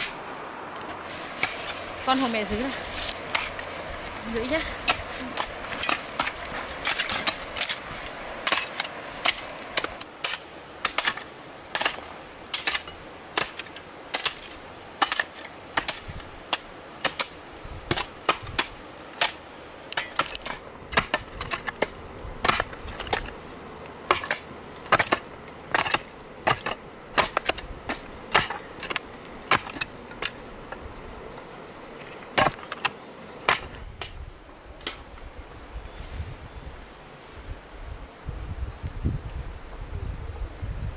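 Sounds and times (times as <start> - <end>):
hand tool chopping strikes: 24.1 - 30.3.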